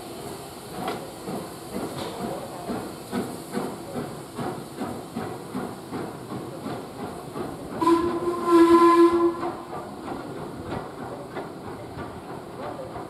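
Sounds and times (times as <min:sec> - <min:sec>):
steam locomotive chuffing: 0:00.0 - 0:13.0
steam whistle: 0:07.8 - 0:09.7.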